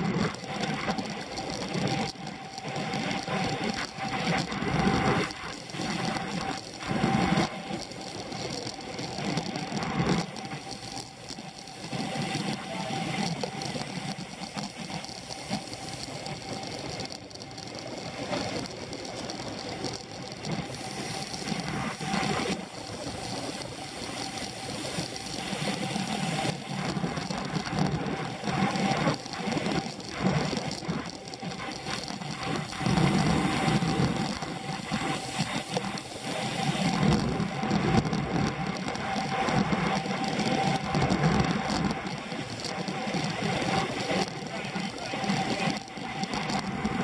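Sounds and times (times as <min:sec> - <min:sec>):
bicycle drivetrain whir and rattle: 0:00.0 - 0:47.0
wind rushing over microphone: 0:18.0 - 0:47.0.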